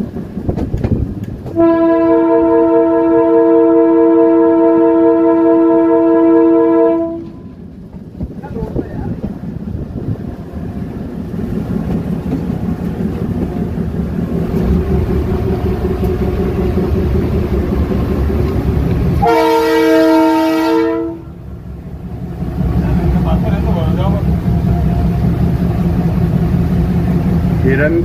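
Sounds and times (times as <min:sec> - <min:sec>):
locomotive low rumble: 0:00.0 - 0:28.0
loud train horn blast: 0:01.5 - 0:07.6, 0:19.1 - 0:21.4.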